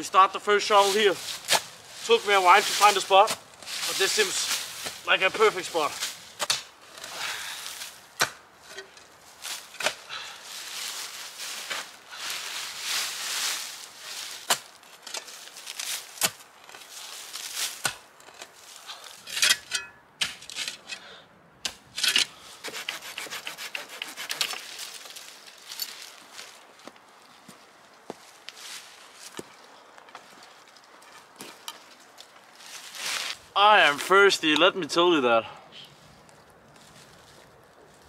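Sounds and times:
rustle of earth and leaves: 0.0 - 19.3, 24.2 - 38.0.

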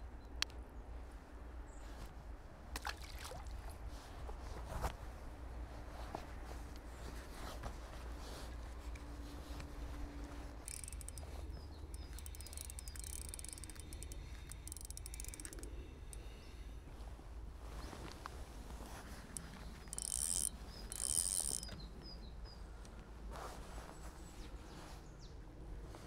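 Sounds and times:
fishing reel whirring and ticking: 10.6 - 16.6, 19.4 - 21.7.

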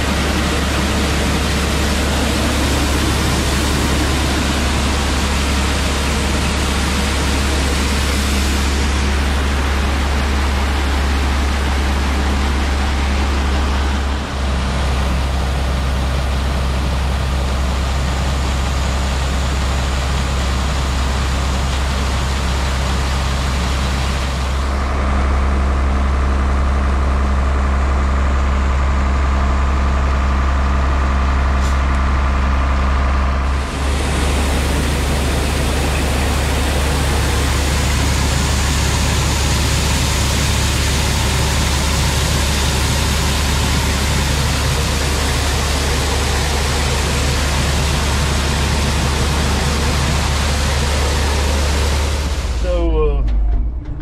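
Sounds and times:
truck engine running: 0.0 - 54.0.

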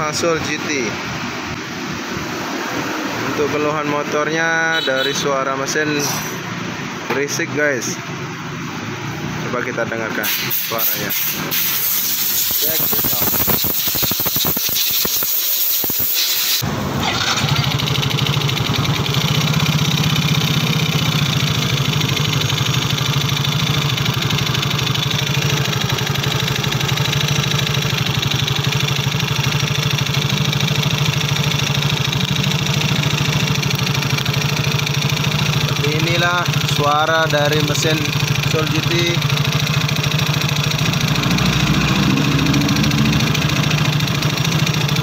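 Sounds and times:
scooter engine starting and idling: 10.2 - 45.0.

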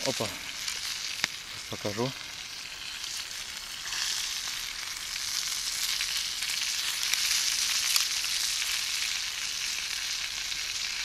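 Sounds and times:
fish sizzling over a fire: 0.0 - 11.0.

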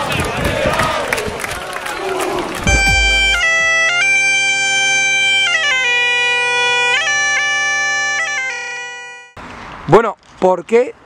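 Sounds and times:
bagpipe tune over drone: 2.7 - 9.2.

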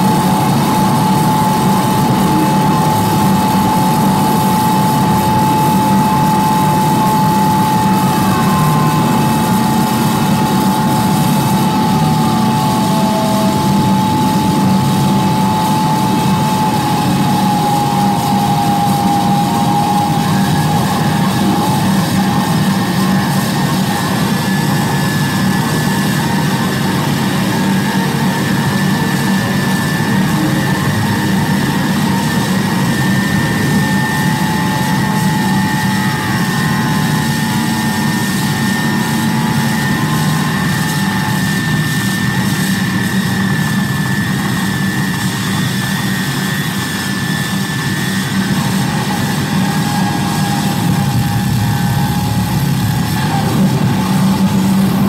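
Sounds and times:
higher tone: 0.0 - 22.4, 49.9 - 55.0
harsh noise wall: 0.0 - 55.0
falling tone glides: 49.9 - 55.0.

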